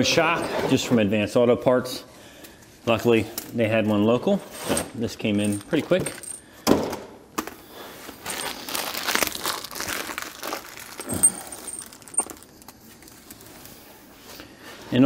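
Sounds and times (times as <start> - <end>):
plastic wrapping crinkling: 8.0 - 13.8.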